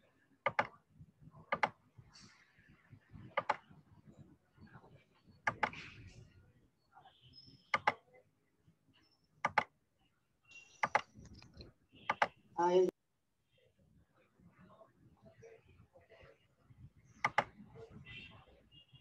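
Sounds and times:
computer mouse clicking: 0.4 - 0.8, 1.5 - 1.8, 3.2 - 3.7, 5.5 - 5.8, 7.7 - 8.0, 9.4 - 9.7, 10.8 - 12.3, 17.2 - 17.6.

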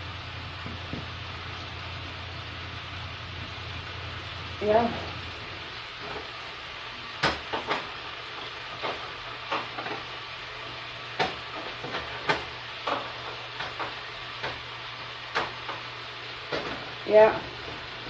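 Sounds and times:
patties sizzling in a frying pan: 0.0 - 18.0
clicks and knocks of pan and burner: 7.2 - 10.1, 11.2 - 14.7, 15.3 - 15.9, 16.5 - 16.9.

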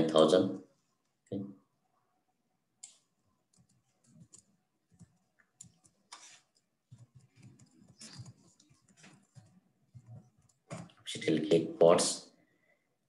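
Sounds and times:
keyboard typing: 2.8 - 11.0.

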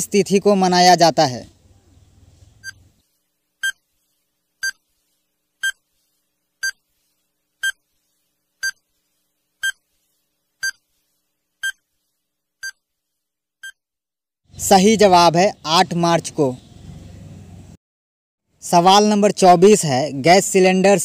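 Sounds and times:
short electronic beeps: 2.6 - 2.8.

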